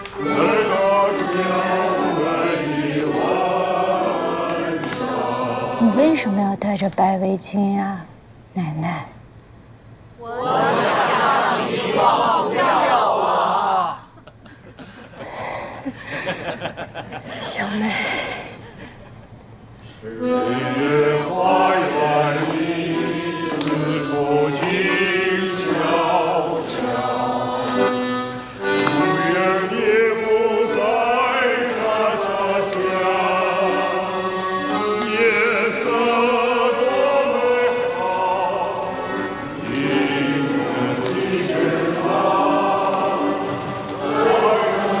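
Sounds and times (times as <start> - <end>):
person singing with vibrato: 0.0 - 6.2, 20.0 - 45.0.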